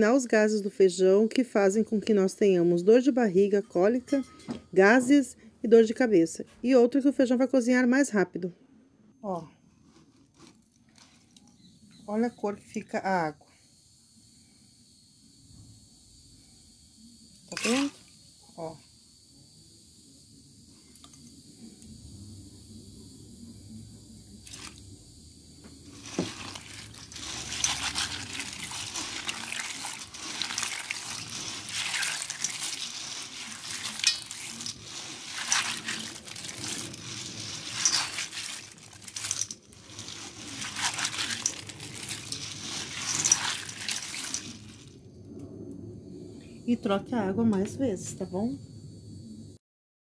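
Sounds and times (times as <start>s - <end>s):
beans sloshing in water: 17.5s - 18.0s, 24.4s - 24.8s, 25.8s - 44.9s.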